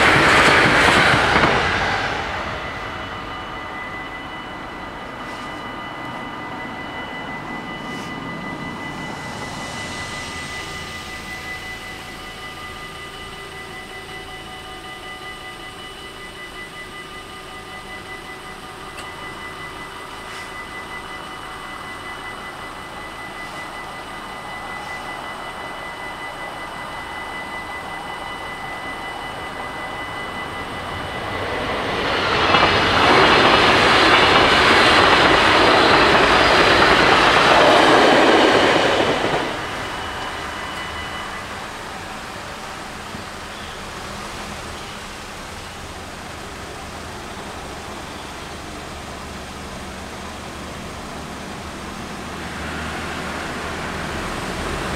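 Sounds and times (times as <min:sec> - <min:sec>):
level crossing warning bells: 0:00.0 - 0:54.9
train wheel and track noise: 0:00.0 - 0:54.9.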